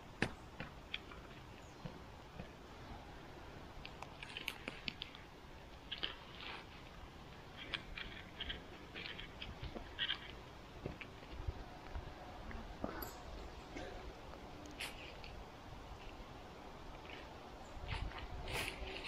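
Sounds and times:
leaf litter crunching and rustling: 16.9 - 19.0.

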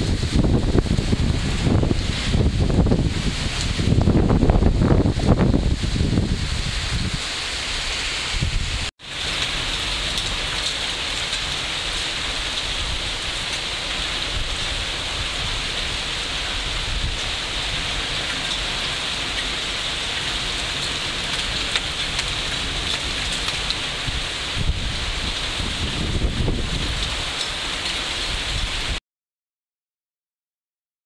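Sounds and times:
heavy rain and hail: 0.0 - 29.0
hail ticks: 20.2 - 23.8.

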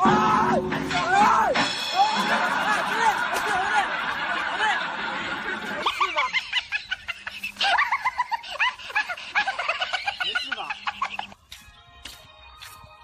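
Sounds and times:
music: 0.0 - 4.4, 8.8 - 13.0
high-pitched snickering laughter: 5.4 - 11.6.

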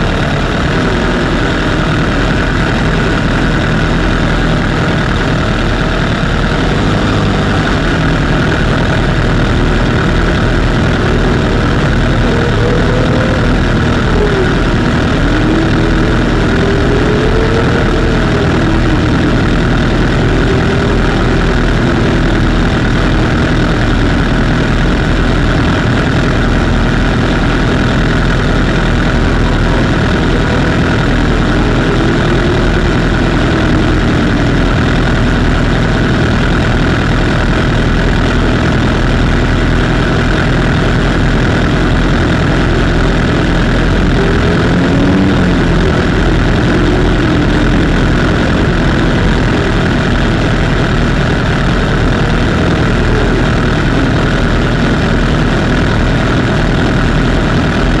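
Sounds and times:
motorcycle engines idling: 0.0 - 58.0.

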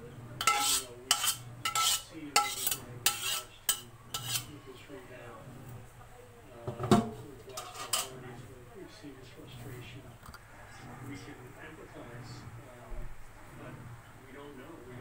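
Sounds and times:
cookware clanking: 0.4 - 4.5, 6.7 - 8.2
metal spatula scraping a wok: 0.4 - 4.6, 7.5 - 8.2.

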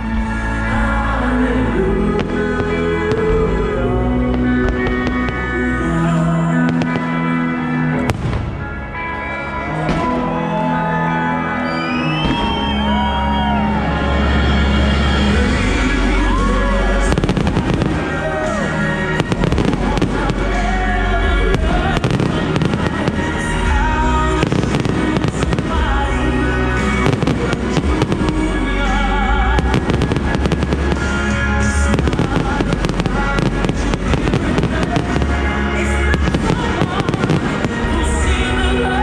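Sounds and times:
loud music with bass: 0.0 - 39.0
fireworks cracking and popping: 4.2 - 5.8, 6.6 - 7.2, 15.7 - 38.8.

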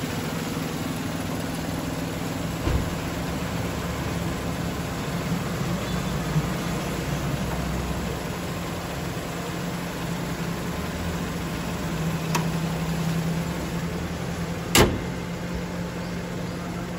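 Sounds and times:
car bonnet slamming shut: 2.6 - 3.2, 14.7 - 15.2.

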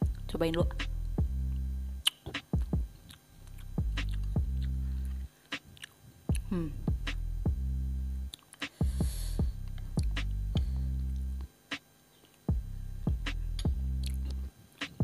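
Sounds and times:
low electrical hum: 0.0 - 15.0
chewing with mouth clicks: 3.0 - 4.8, 5.8 - 6.4, 13.6 - 14.4.

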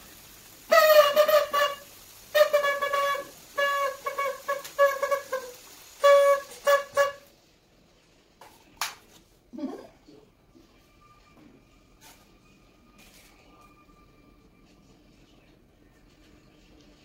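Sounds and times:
paper party horn toots: 0.7 - 7.3.

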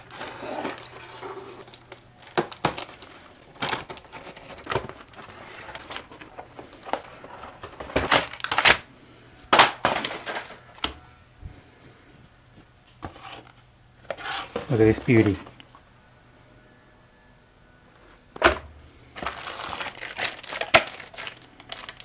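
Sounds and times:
packaging rustling and crackling: 0.0 - 8.9, 9.5 - 10.9, 18.4 - 22.0.

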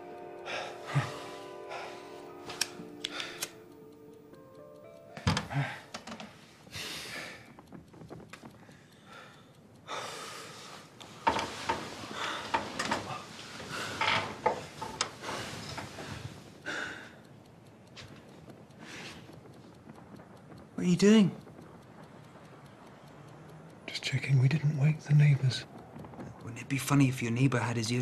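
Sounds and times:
men breathing heavily and gasping: 0.4 - 3.6, 5.1 - 7.6
soft knocks and clicks: 11.0 - 16.4.

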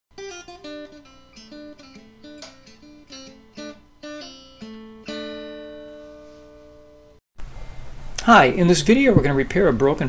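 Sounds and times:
acoustic guitar melody: 0.1 - 7.2.

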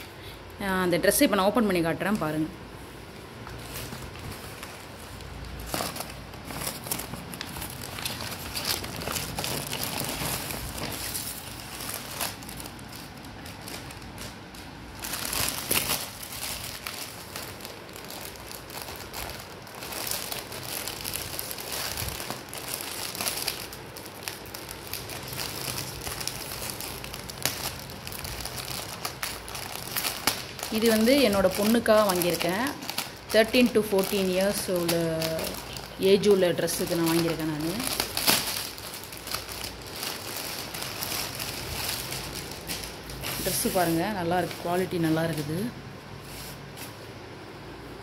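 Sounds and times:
paper and plastic bags crinkling: 3.1 - 47.0.

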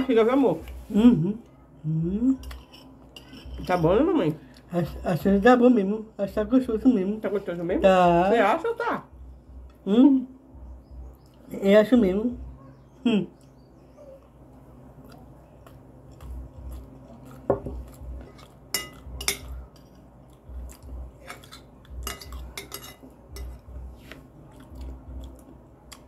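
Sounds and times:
chewing: 13.4 - 26.0
cutlery clinking on glass plates: 18.7 - 19.9, 21.2 - 23.6.

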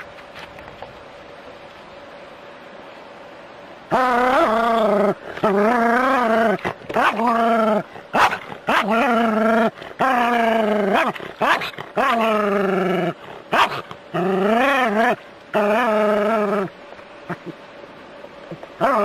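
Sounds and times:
dog yelping: 3.9 - 16.7, 18.8 - 19.0.

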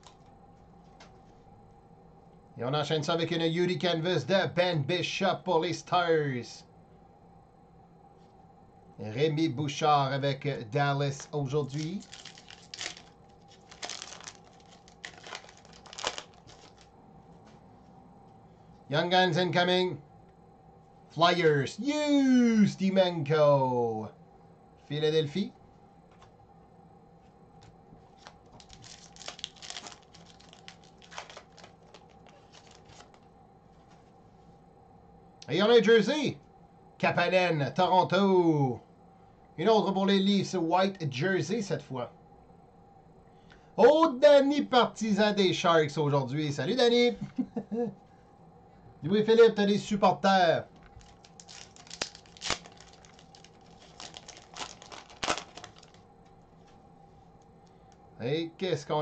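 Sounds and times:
foil wrapper tearing and crinkling: 11.6 - 16.9, 28.2 - 33.3, 50.8 - 56.0.

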